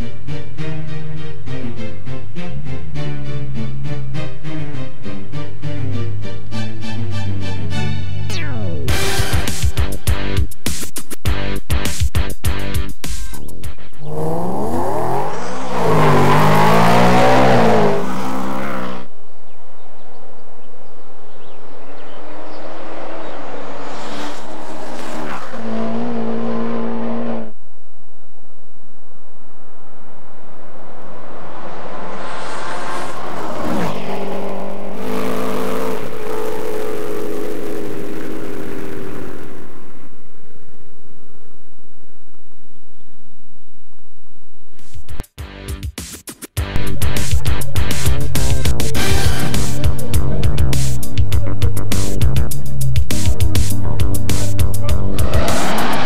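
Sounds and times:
car engine accelerating hard: 14.0 - 19.1, 20.9 - 27.6, 29.6 - 40.7, 53.9 - 56.0.

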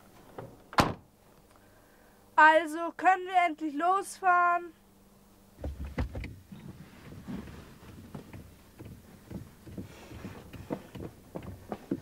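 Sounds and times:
fingers drumming on car door: 8.0 - 12.0.

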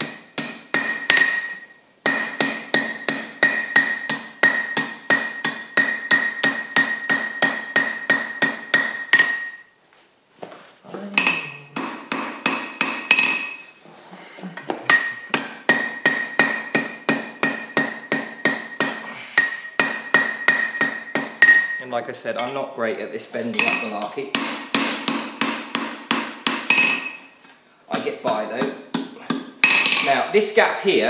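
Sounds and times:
anvil ringing: 0.0 - 9.7, 14.9 - 22.7
hammer striking hot steel: 0.0 - 9.7, 11.2 - 13.7, 14.9 - 21.8, 23.5 - 27.3, 28.3 - 30.2.

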